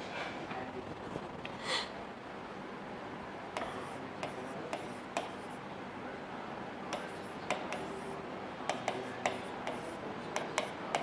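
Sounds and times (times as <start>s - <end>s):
stylus tapping on screen: 3.6s - 5.4s, 6.9s - 8.0s, 8.7s - 11.0s
faint scratchy pen strokes: 8.8s - 10.1s.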